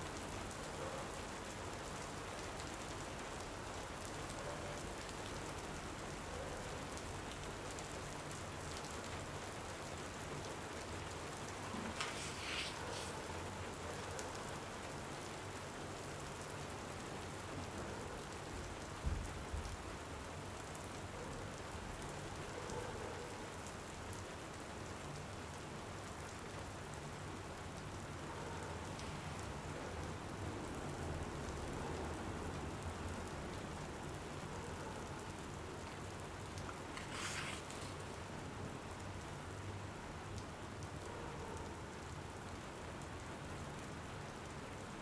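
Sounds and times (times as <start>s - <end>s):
steady rain falling: 0.0s - 45.0s
brief rustle: 11.7s - 13.2s, 36.7s - 38.0s.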